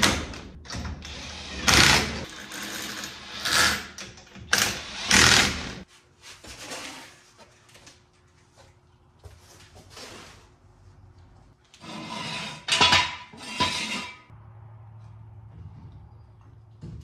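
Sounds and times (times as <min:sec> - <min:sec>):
rustling and scuffing: 0:05.8 - 0:11.6.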